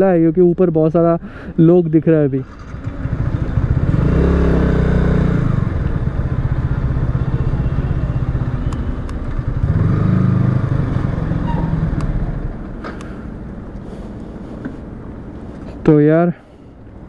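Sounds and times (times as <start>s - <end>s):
motorcycle engine revving: 2.4s - 12.5s.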